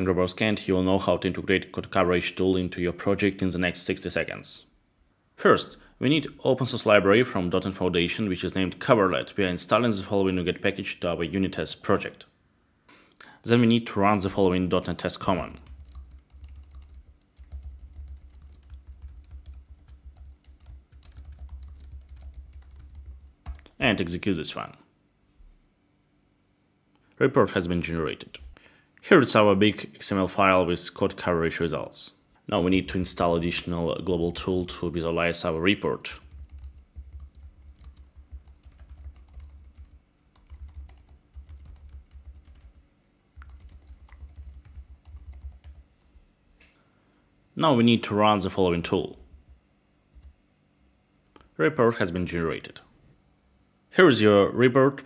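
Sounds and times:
low steady hum: 0:00.0 - 0:55.0
keyboard keys clicking: 0:15.6 - 0:23.7, 0:36.3 - 0:42.8, 0:43.4 - 0:45.8.

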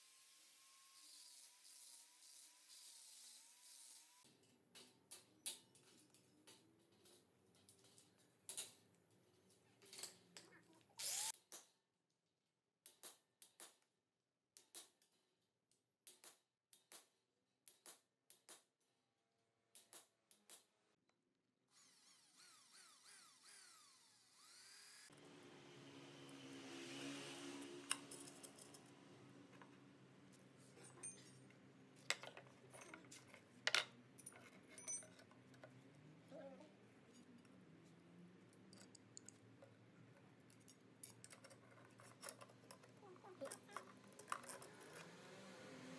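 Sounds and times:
metal parts clinking: 0:30.8 - 0:35.8, 0:40.4 - 0:45.0
metal clicks and taps: 0:38.5 - 0:44.7.

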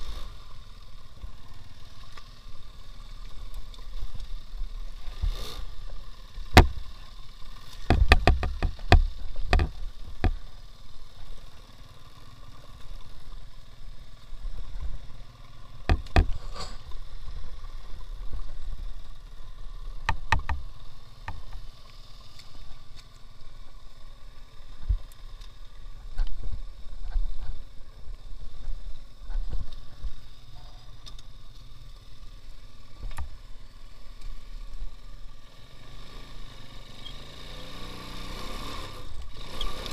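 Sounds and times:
small engine running: 0:00.0 - 0:39.9
sharp clattering knocks: 0:07.8 - 0:10.4, 0:15.9 - 0:16.4, 0:20.0 - 0:20.6.

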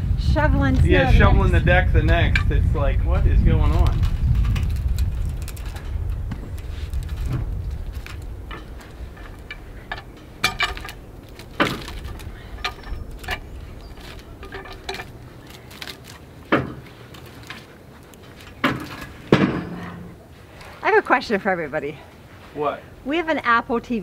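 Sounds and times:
metal clanks of log on steel bed: 0:07.2 - 0:17.7, 0:18.3 - 0:20.2.

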